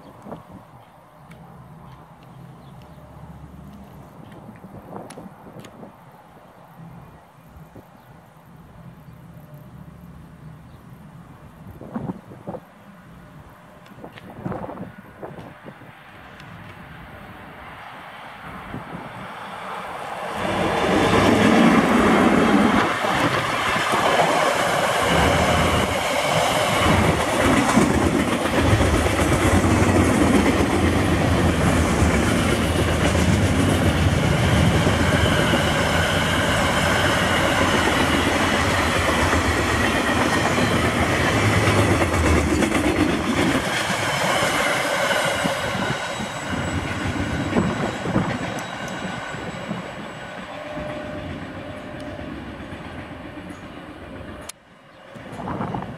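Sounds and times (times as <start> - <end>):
locomotive passing: 6.7 - 55.9
wheels clicking over rail joints: 20.4 - 35.5.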